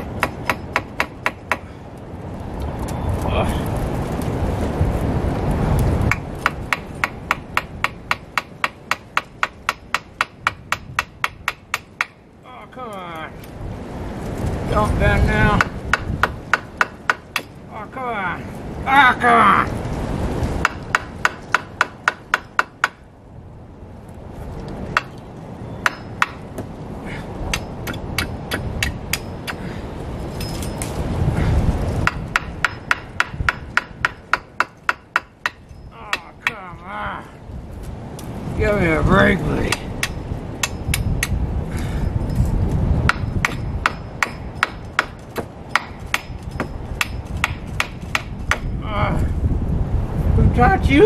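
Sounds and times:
hammer striking nail into wood: 0.0s - 1.6s, 6.1s - 12.2s, 15.6s - 17.5s, 20.6s - 23.0s, 25.8s - 26.7s, 32.0s - 36.6s, 43.1s - 48.7s.

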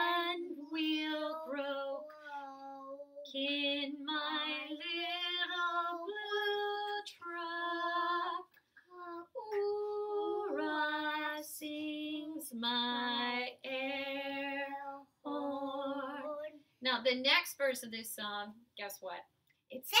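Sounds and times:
woman singing unaccompanied: 0.0s - 2.1s, 3.3s - 8.6s, 9.4s - 16.6s.

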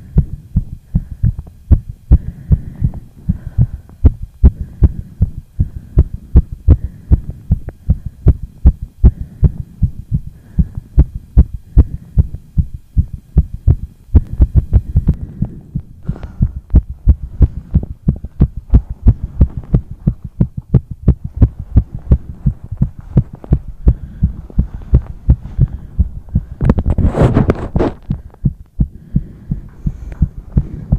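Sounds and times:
fast heartbeat thumps: 0.0s - 30.9s.

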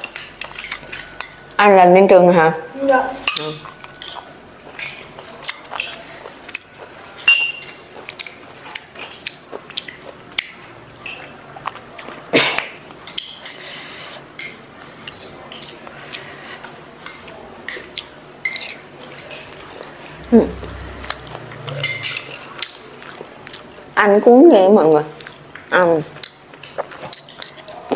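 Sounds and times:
spoons clinking on ceramic bowls: 7.2s - 7.8s.

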